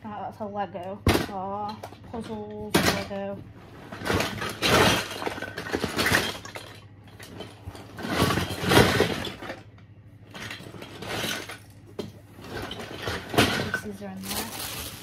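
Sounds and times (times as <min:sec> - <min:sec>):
plastic bricks clattering: 0:03.9 - 0:09.6, 0:12.4 - 0:15.0.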